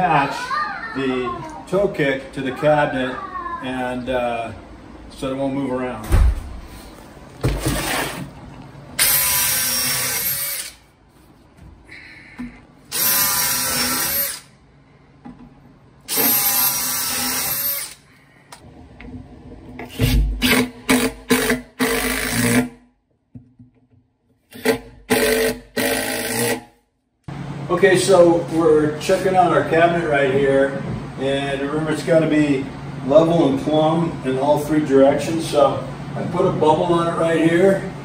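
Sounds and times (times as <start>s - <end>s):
cordless drill driving screws: 9.0s - 10.8s, 12.9s - 14.5s, 16.1s - 18.0s
impact driver bursts: 9.0s - 10.8s, 12.9s - 14.5s, 16.1s - 18.0s, 20.0s - 22.7s, 24.5s - 26.7s.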